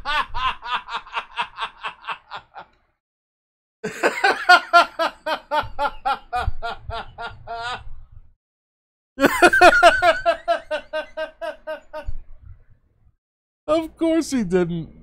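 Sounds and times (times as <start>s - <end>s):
man laughing: 0.0s - 2.7s, 3.8s - 7.8s, 9.2s - 12.1s.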